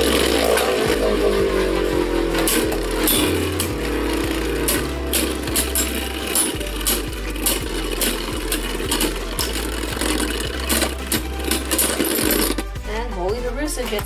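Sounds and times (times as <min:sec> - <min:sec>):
spinning tops whirring and rattling: 0:00.0 - 0:12.8
background music with steady beat: 0:00.0 - 0:14.0
spinning tops clicking as they collide: 0:02.4 - 0:12.8.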